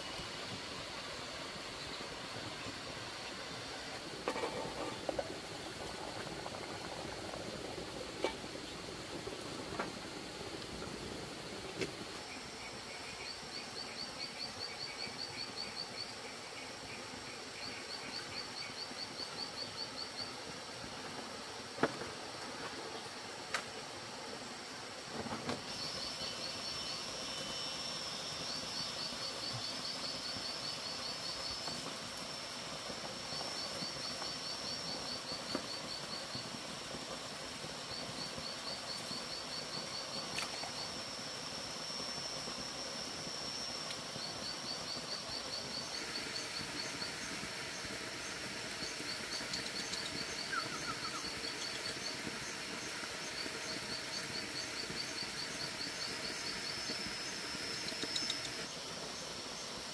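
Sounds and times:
high-pitched insect drone: 25.7 - 36.6, 37.8 - 48.0, 48.8 - 59.9.

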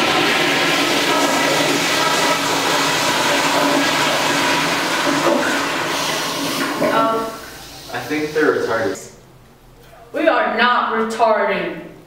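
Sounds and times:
toilet flushing: 0.0 - 9.1.

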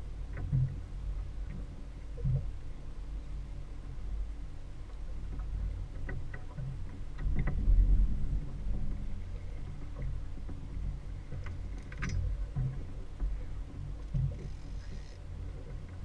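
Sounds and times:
outboard motor idling: 0.0 - 16.0
light knocks on boat: 11.3 - 15.0.

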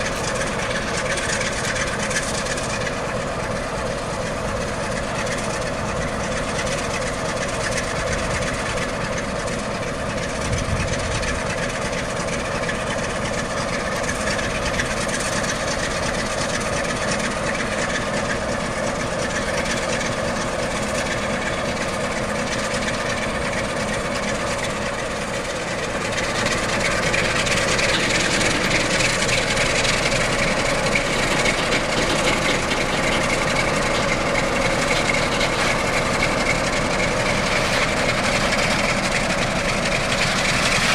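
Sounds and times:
locomotive diesel engine running: 0.0 - 40.9.

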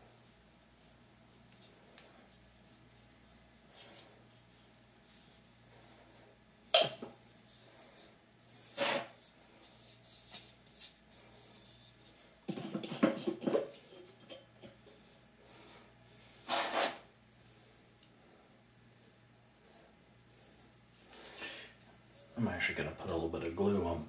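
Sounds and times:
short rubs: 7.5 - 12.2, 16.3 - 17.1
can handling clicks and scrapes: 16.4 - 17.1.

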